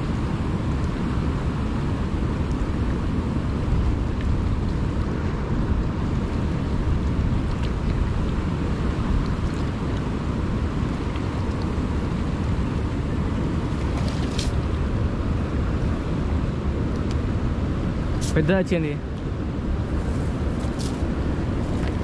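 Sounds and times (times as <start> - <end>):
wind buffeting microphone: 0.0 - 22.0
water lapping against rocks: 3.7 - 15.0.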